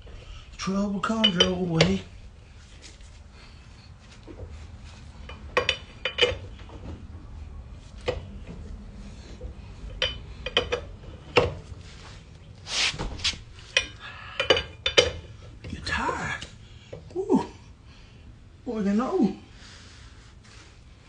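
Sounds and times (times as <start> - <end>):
lug wrench clanking on metal: 1.0 - 2.1, 5.2 - 6.8, 9.8 - 11.8, 13.6 - 15.8.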